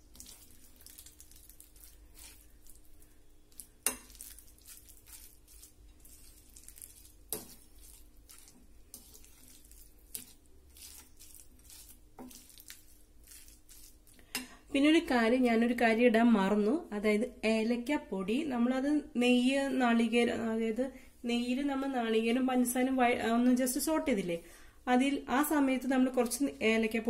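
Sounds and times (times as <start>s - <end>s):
spatula scraping in bowl: 3.5s - 14.0s.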